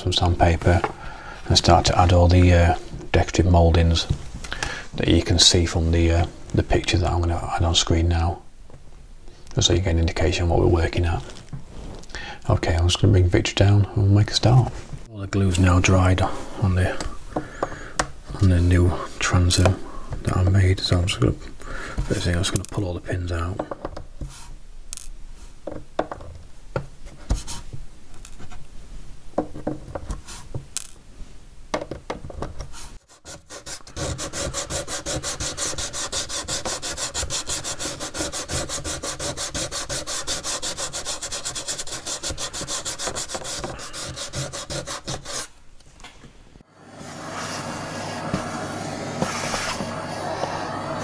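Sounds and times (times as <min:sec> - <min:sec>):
sandpaper rubbing wood: 0:32.8 - 0:45.5, 0:47.1 - 0:51.0.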